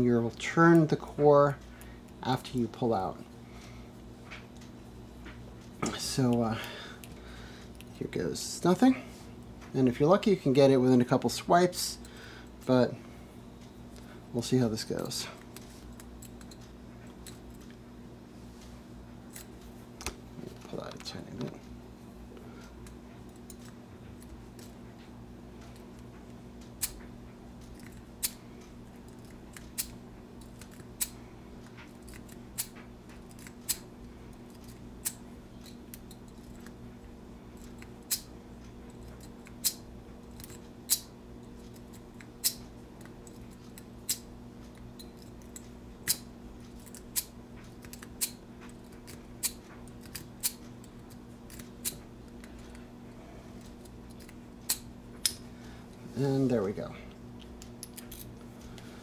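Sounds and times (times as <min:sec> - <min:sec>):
metallic clicks of lock picking: 0:46.8 - 0:52.7.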